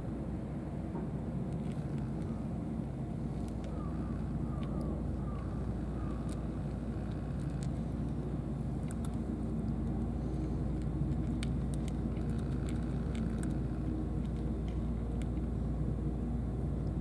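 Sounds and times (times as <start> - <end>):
low engine rumble: 0.0 - 17.0
cat crunching dry kibble: 1.5 - 2.5, 3.2 - 15.6.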